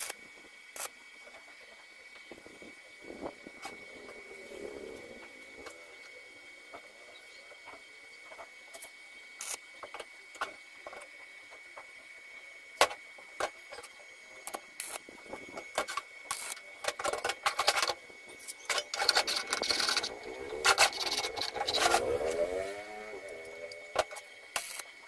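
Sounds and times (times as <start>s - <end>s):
metal scraping: 16.3s - 24.8s.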